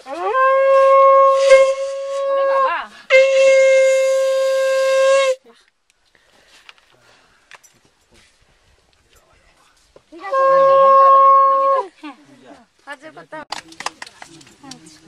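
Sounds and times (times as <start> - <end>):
conch shell blasts: 0.1 - 5.4, 10.3 - 11.8.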